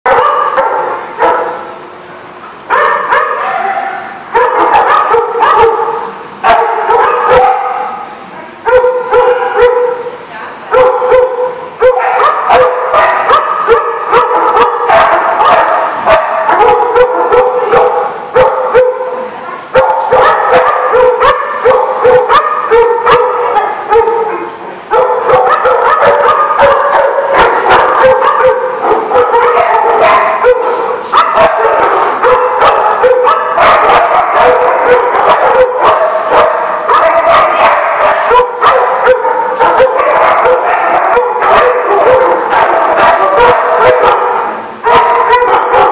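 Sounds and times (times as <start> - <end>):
many dogs barking: 0.0 - 1.8, 2.7 - 45.9.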